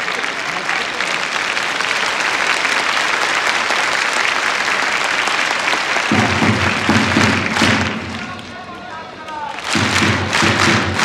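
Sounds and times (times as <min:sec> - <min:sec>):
crowd applauding: 0:00.0 - 0:11.0
low rhythmic thumping: 0:09.7 - 0:11.0.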